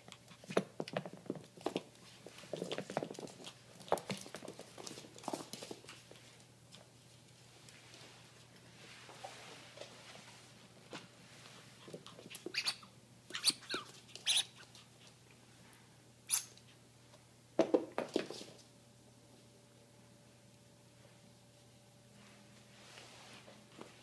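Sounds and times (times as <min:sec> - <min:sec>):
rubber squeak toy squeaking: 0:12.5 - 0:14.5.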